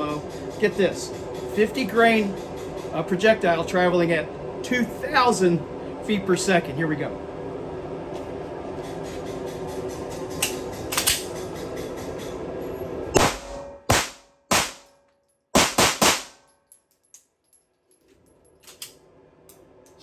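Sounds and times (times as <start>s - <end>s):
pistol shots with echo: 15.6s - 16.4s.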